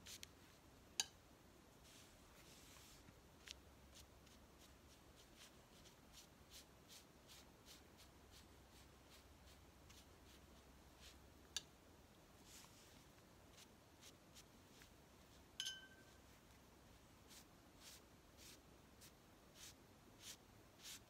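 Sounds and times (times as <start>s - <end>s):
brush strokes on paper: 0.0s - 0.6s, 1.7s - 11.4s, 12.3s - 21.0s.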